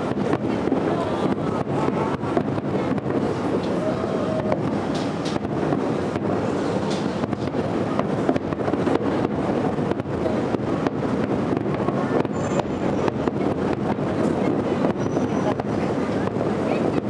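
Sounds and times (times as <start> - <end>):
distant fireworks rumble: 0.0 - 17.0
fireworks bursting: 0.0 - 17.0
sharp cracks and bangs: 4.5 - 16.4.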